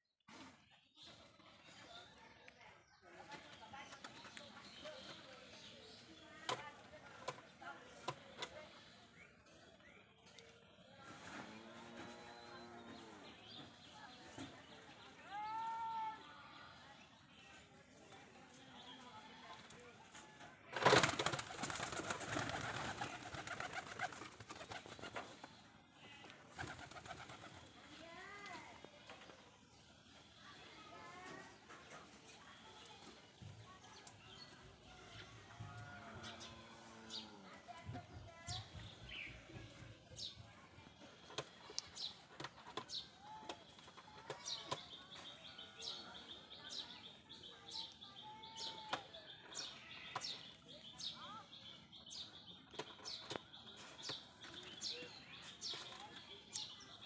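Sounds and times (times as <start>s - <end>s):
pigeon wingbeats clattering: 20.7s - 25.6s, 26.5s - 27.7s
small birds chirping: 36.2s - 57.0s.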